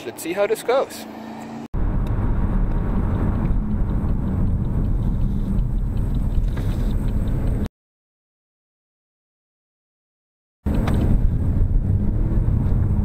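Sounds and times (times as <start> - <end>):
car engine rumble: 0.0 - 7.7, 10.7 - 13.0
road noise: 0.0 - 7.7, 10.7 - 13.0.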